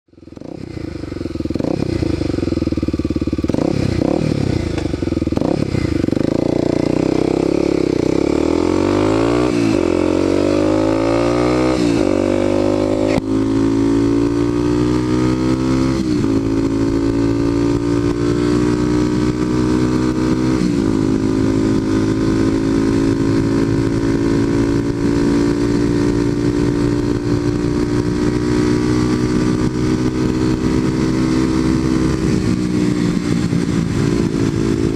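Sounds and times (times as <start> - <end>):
motorcycle engine accelerating: 0.1 - 34.9.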